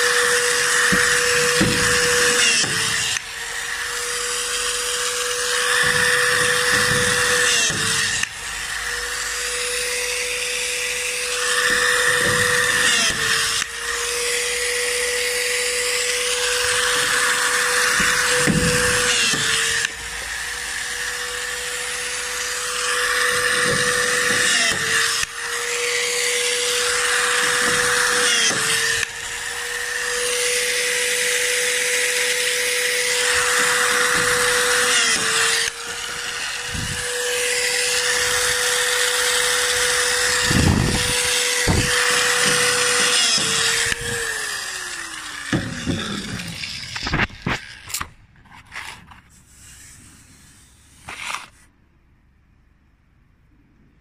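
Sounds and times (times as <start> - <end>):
air tool whine: 0.0 - 48.1
rivet gun hammering: 0.5 - 3.3, 5.7 - 8.4, 11.6 - 13.8, 16.8 - 20.0, 32.9 - 36.2, 39.6 - 44.1.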